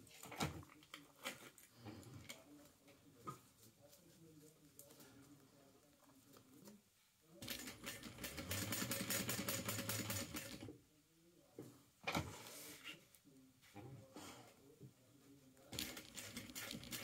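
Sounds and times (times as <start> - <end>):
sewing machine stitching: 7.4 - 10.7, 15.8 - 17.0.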